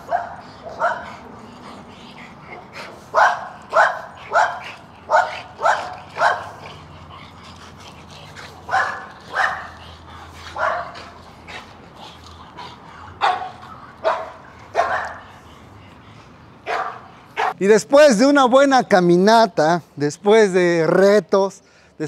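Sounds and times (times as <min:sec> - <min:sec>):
dog barking: 0:00.0 - 0:01.1, 0:03.1 - 0:06.8, 0:08.7 - 0:09.8, 0:10.5 - 0:11.1, 0:13.2 - 0:15.3, 0:16.6 - 0:17.6.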